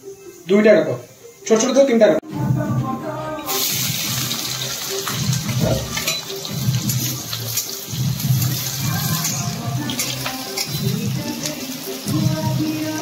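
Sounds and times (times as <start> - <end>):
background music: 0.0 - 13.0
water running from a tap: 3.5 - 13.0.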